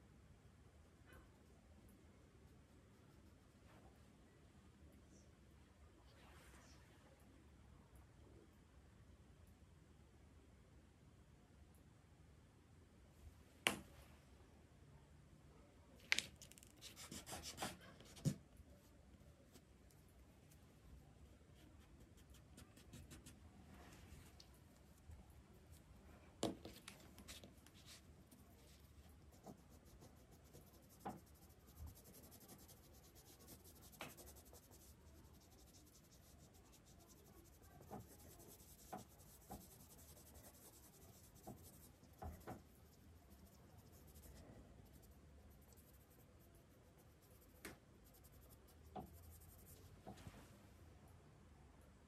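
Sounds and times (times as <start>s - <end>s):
soft taps and clicks: 13.6s - 13.9s
pencil scratching on paper: 16.7s - 18.4s, 21.5s - 23.4s, 26.6s - 49.9s.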